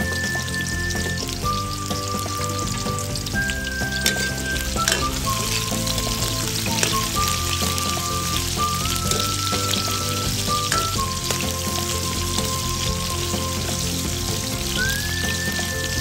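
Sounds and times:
background music: 0:00.0 - 0:16.0
vegetables sizzling in oil: 0:00.0 - 0:16.0
ladle clinking against wok: 0:03.9 - 0:07.9, 0:10.5 - 0:11.9.

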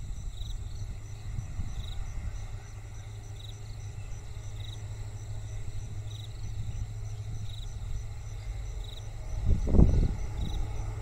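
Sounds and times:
insect buzzing trill: 0:00.0 - 0:11.0
insects chirping: 0:00.0 - 0:11.0
low steady rumble: 0:00.0 - 0:11.0.

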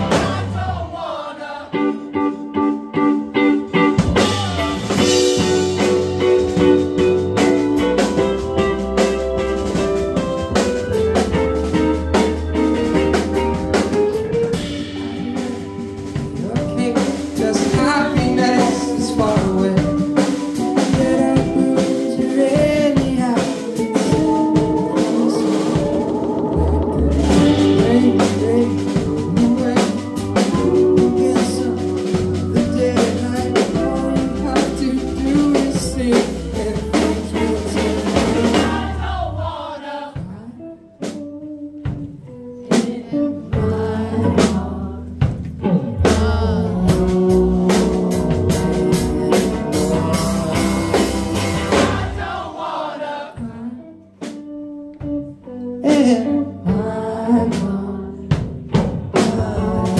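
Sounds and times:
rock band playing live: 0:00.0 - 0:01.0, 0:01.6 - 0:52.6, 0:53.3 - 0:59.9
person singing: 0:14.1 - 0:41.2, 0:42.4 - 0:54.5, 0:55.2 - 0:59.9.

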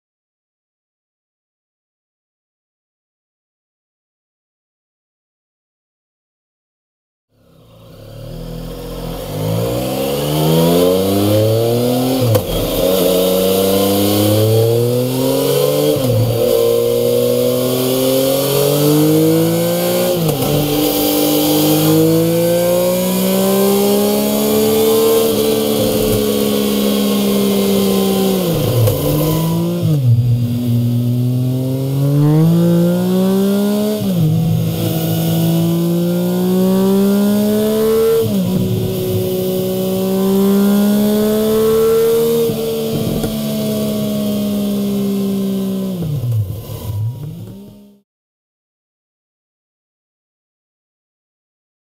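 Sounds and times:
motorcycle engine accelerating: 0:07.4 - 0:48.0.

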